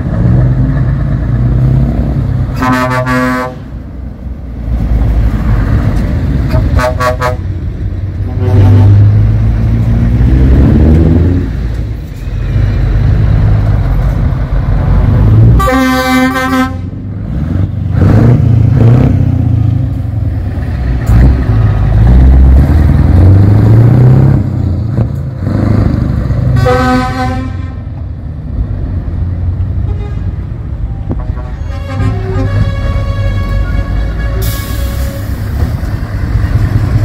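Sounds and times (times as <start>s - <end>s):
diesel truck engine revving: 0.0s - 30.8s
truck horn blast: 2.5s - 3.8s, 6.5s - 7.6s, 8.2s - 9.1s, 15.5s - 17.0s, 26.5s - 27.9s, 29.8s - 30.4s, 31.1s - 35.4s.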